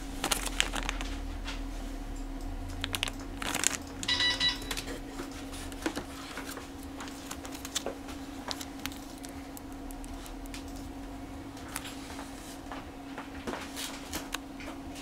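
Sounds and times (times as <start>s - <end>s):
plastic bag crinkling: 0.0s - 1.6s, 2.8s - 10.7s
steady low hum: 0.0s - 15.0s.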